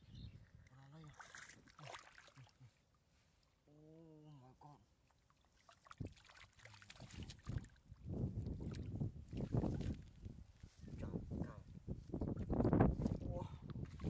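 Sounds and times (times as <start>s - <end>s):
muddy water splashing: 0.5s - 3.0s, 5.0s - 10.4s, 13.8s - 14.0s
fish thrashing in water: 5.4s - 7.9s.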